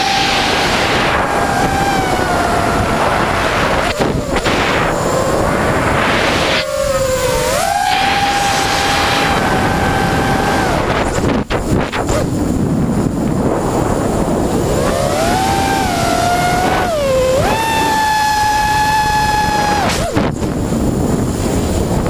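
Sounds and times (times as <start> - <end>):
quadcopter motors buzzing whine: 0.0 - 22.0
rushing air noise: 0.0 - 22.0.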